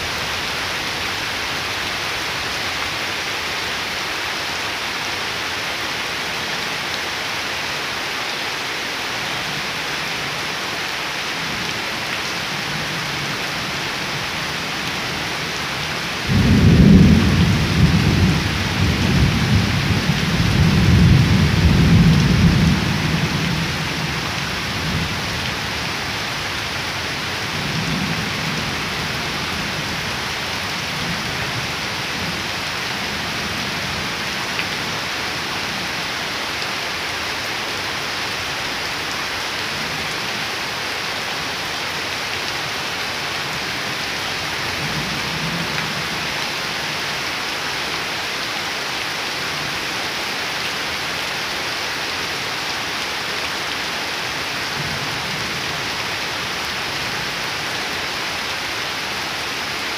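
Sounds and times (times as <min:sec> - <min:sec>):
heavy rain on water and leaves: 0:00.0 - 0:59.9
thunder rumbling: 0:16.3 - 0:23.5.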